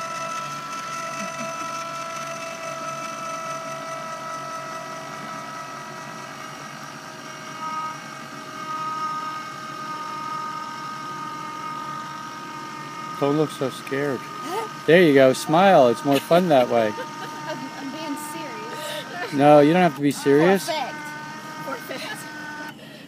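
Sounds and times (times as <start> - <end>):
electric motor whining: 0.0 - 23.0.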